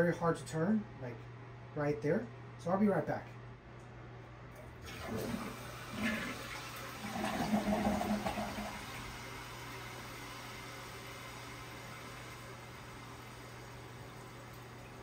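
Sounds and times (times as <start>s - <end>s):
fan humming: 0.0s - 15.0s.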